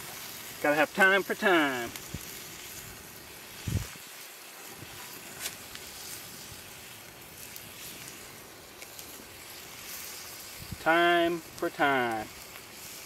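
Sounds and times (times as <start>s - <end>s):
faint crackles: 0.0s - 13.0s
meat sizzling in a pot: 0.0s - 13.0s.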